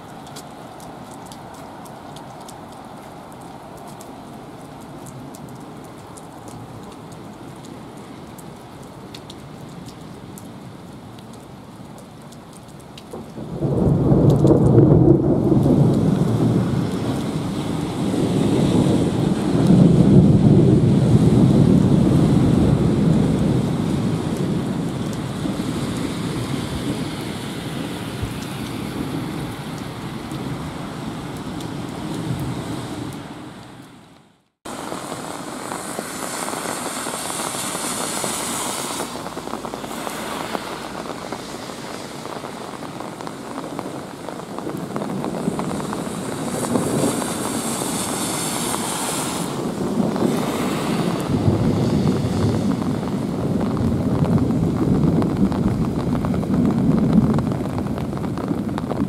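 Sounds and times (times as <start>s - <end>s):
heavy rain pouring: 0.0s - 59.0s
low thunder rumble: 13.2s - 27.0s, 49.6s - 59.0s
cars swishing past on wet road: 13.4s - 34.1s, 34.7s - 56.8s.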